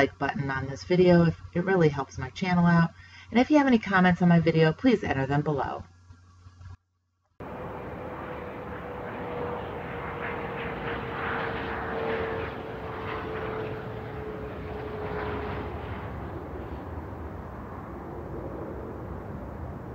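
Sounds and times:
airplane flyby drone: 0:07.4 - 0:19.9.

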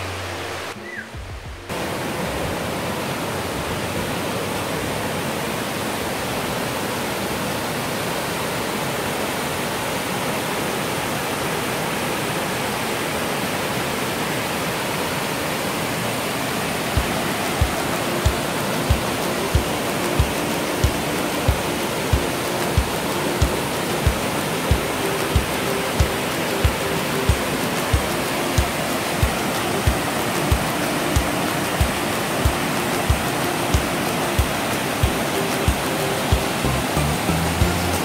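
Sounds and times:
water rushing over rocks: 0:00.0 - 0:38.0
low background music beat: 0:00.7 - 0:01.8, 0:17.0 - 0:38.0.

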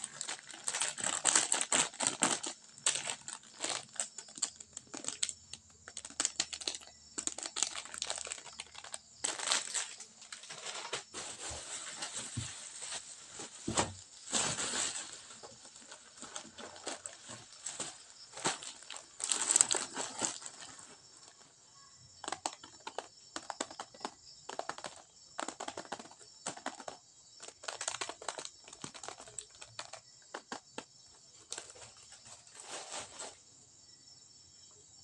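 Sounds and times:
plastic packaging crinkling: 0:00.0 - 0:21.5, 0:22.2 - 0:33.4.

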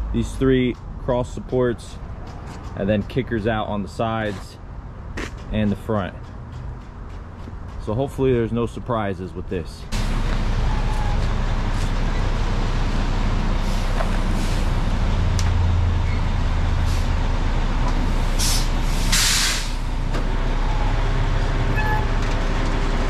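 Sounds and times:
diesel engine drone: 0:00.0 - 0:23.0
air hiss: 0:18.3 - 0:19.9.

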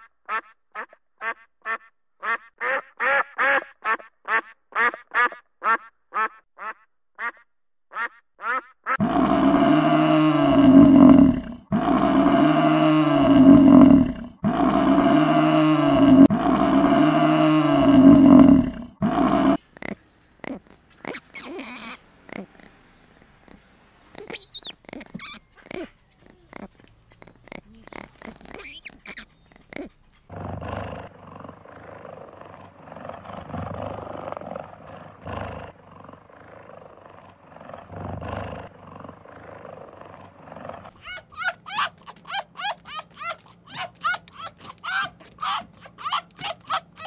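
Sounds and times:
duck quacking: 0:00.3 - 0:09.0
water buffalo lowing: 0:09.0 - 0:47.0
faint lemur calls: 0:19.8 - 0:30.1.

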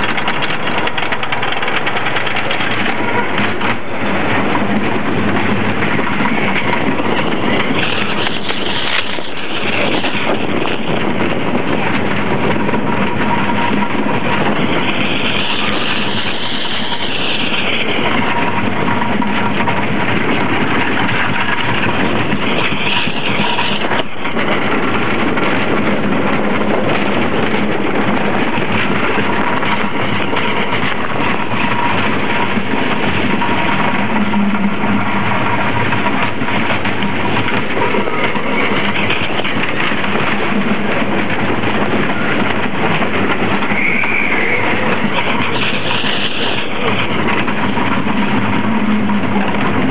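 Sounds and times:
roller coaster jolt: 0:00.0 - 0:49.9
roller coaster rattling on track: 0:00.0 - 0:49.9
high wheel squeals: 0:43.7 - 0:46.9.

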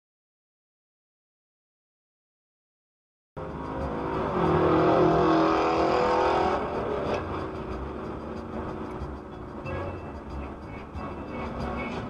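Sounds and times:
car road and engine noise: 0:03.4 - 0:12.0.

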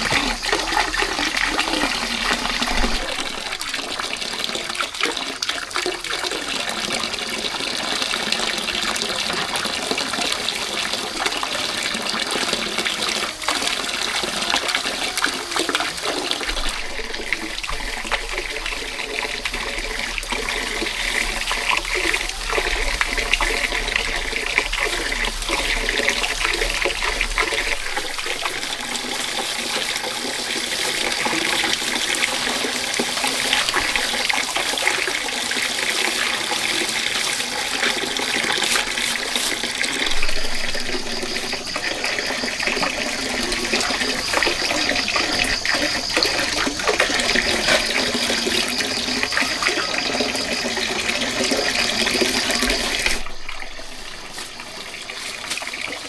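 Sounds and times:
running water: 0:00.0 - 0:56.0
hands rustling rice in basin: 0:08.5 - 0:56.0.

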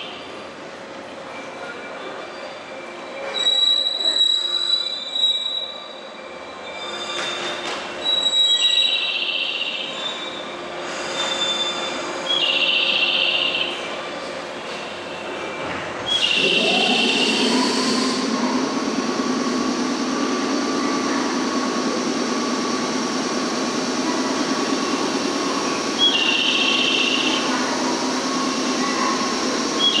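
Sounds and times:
electric train whine: 0:05.8 - 0:30.0
mechanical hum: 0:16.0 - 0:30.0
short high-pitched tone: 0:16.1 - 0:18.6.

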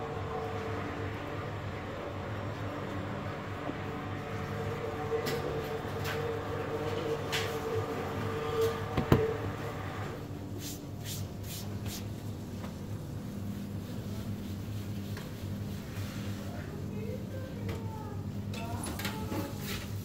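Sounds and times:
kitchen equipment humming: 0:00.0 - 0:16.0.

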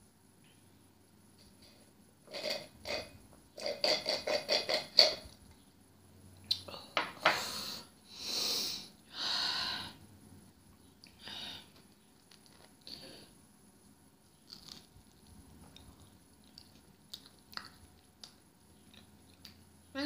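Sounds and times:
person breathing: 0:07.3 - 0:10.1, 0:11.1 - 0:11.8.

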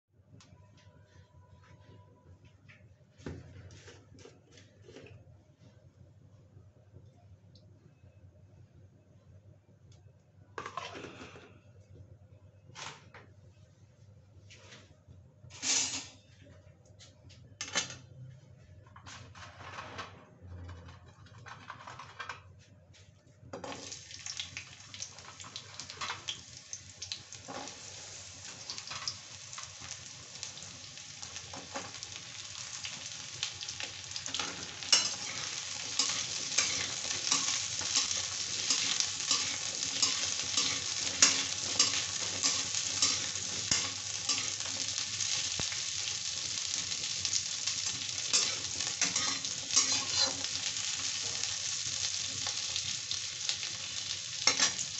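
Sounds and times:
vegetables sizzling in hot oil: 0:23.6 - 0:54.9
spatula scraping the pan: 0:34.2 - 0:45.4, 0:46.9 - 0:51.5, 0:54.4 - 0:54.9.

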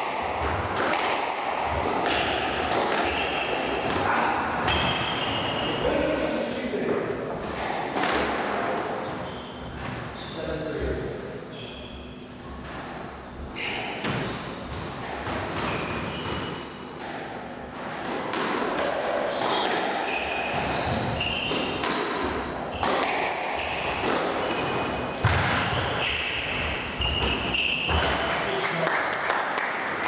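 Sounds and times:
rackets striking ball: 0:00.0 - 0:05.5, 0:07.4 - 0:08.8, 0:14.0 - 0:28.4
shoes squeaking on wooden floor: 0:15.6 - 0:16.5, 0:19.3 - 0:21.6, 0:25.6 - 0:28.4.

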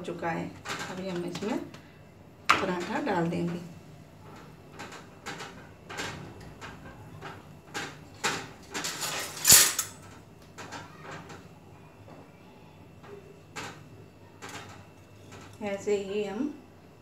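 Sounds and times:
kitchen knocks and clicks: 0:00.6 - 0:01.8, 0:02.5 - 0:03.6, 0:04.4 - 0:11.5.

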